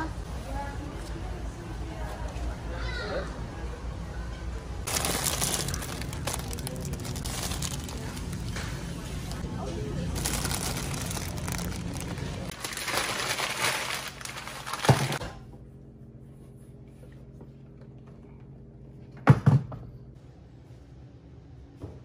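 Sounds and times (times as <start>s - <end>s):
store background noise: 0.0s - 19.1s
low room hum: 0.0s - 22.0s
plastic packaging crinkling: 4.9s - 9.4s, 10.1s - 15.2s.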